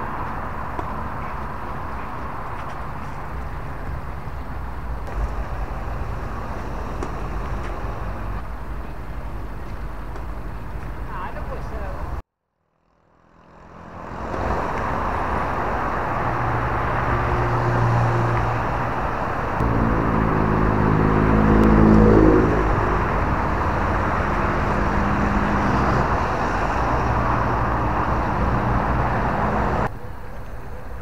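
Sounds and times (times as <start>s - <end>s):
road traffic noise: 0.0s - 31.0s
vehicle engine rising in pitch: 13.0s - 29.9s.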